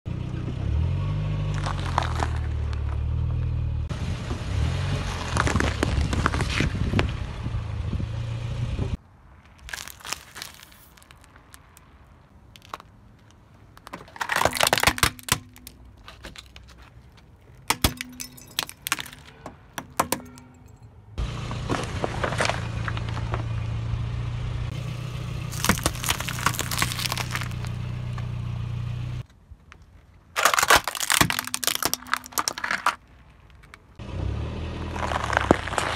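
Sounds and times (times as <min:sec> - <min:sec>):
objects crunching under tyre: 0:01.3 - 0:03.6, 0:04.8 - 0:07.2, 0:09.3 - 0:23.8, 0:24.7 - 0:28.4, 0:29.2 - 0:35.9
hard plastic cracking and snapping: 0:12.5 - 0:20.4, 0:25.5 - 0:27.7, 0:29.8 - 0:33.8.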